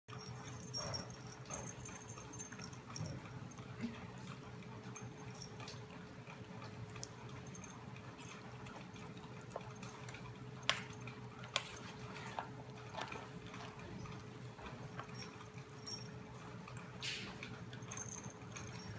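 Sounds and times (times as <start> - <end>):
faint steady hum: 0.1 - 18.9
puppies chewing from metal bowl: 0.1 - 18.9.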